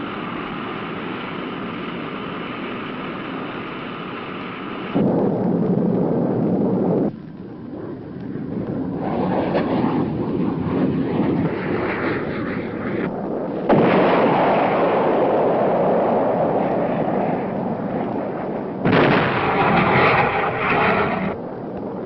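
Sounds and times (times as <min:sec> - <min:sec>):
jet engines roaring: 0:00.0 - 0:22.0.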